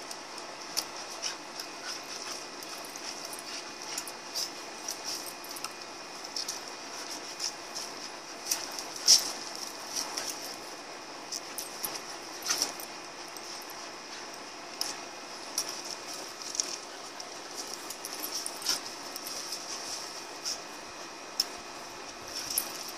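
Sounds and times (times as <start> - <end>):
dogs scuffling: 0.7 - 22.9
metal chain and collar jingling: 1.8 - 5.7, 15.6 - 20.1, 22.3 - 22.9.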